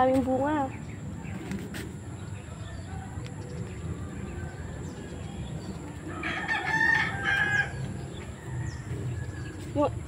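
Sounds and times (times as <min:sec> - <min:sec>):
rooster crowing: 0:06.1 - 0:09.6.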